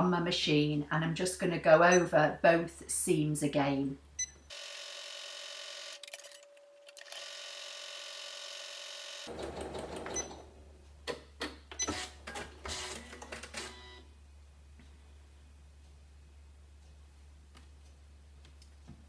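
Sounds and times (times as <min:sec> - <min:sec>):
sewing machine stitching: 0:09.2 - 0:10.7.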